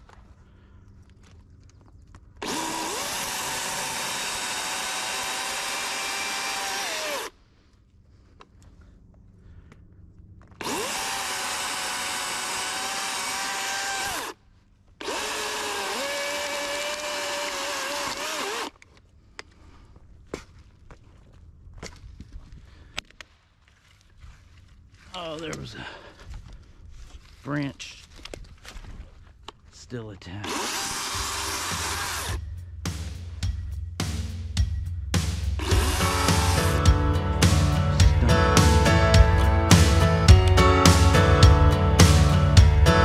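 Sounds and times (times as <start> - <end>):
electric chainsaw whining: 2.4 - 7.4, 10.6 - 14.4, 15.0 - 18.8, 30.4 - 32.4, 35.6 - 41.2.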